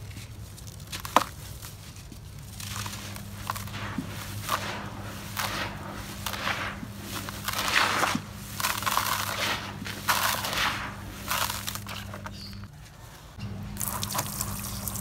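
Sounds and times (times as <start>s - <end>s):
concrete grit pouring: 2.4s - 12.6s.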